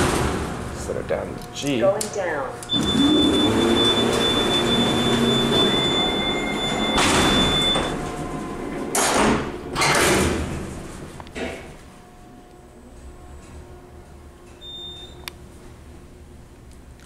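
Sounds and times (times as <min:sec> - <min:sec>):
elevator doors banging shut: 0:00.0 - 0:00.8, 0:02.7 - 0:11.9
door motor humming: 0:02.6 - 0:15.8
high-pitched alarm tone: 0:02.7 - 0:08.6.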